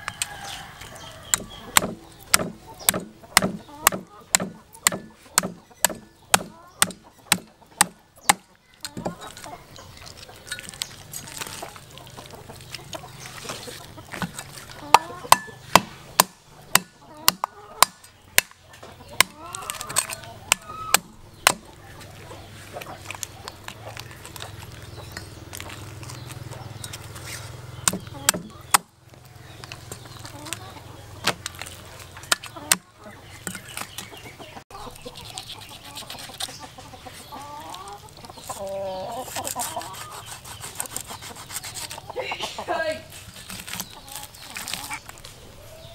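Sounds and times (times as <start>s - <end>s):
cleaver chopping on wooden board: 1.3s - 9.2s, 14.2s - 18.6s, 19.2s - 19.4s, 20.0s - 21.7s, 27.8s - 28.9s.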